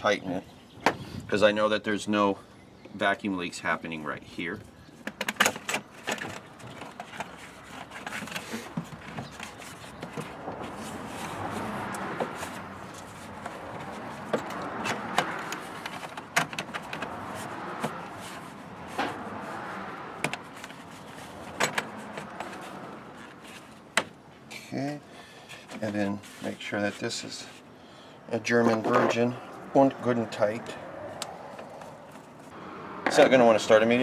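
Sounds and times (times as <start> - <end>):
clicks and scraping of hand work: 5.0 - 24.2.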